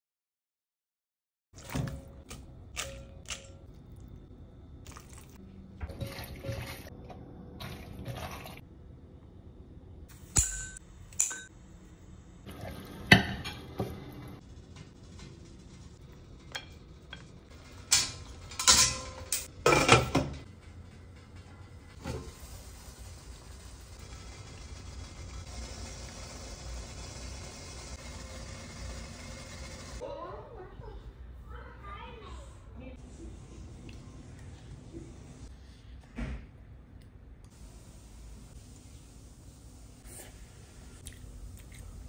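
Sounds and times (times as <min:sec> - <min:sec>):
dishes and utensils clinking: 0:10.3 - 0:11.5, 0:13.0 - 0:14.2, 0:16.4 - 0:20.5.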